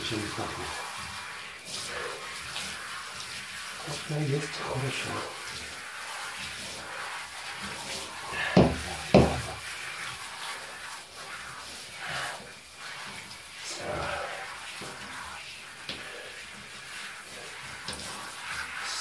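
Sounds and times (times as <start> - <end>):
shower water running: 0.0 - 19.0
sharp knocks: 8.6 - 9.4.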